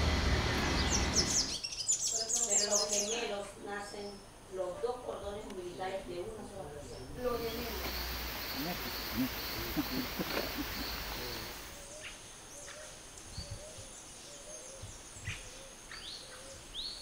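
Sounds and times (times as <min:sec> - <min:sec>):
faint voices: 0:05.4 - 0:11.8
low repeating bird call: 0:07.3 - 0:12.1
high insect buzz: 0:07.4 - 0:11.8.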